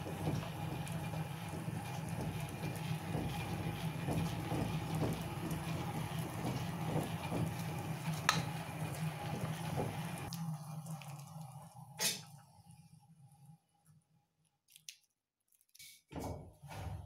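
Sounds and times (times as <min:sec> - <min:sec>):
lathe mechanical rumble: 0:00.0 - 0:10.3.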